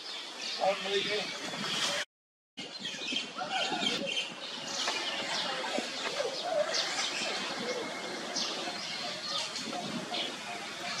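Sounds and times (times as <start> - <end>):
birds chirping: 0.0 - 2.0, 2.6 - 11.0
lower cooing calls: 5.0 - 11.0.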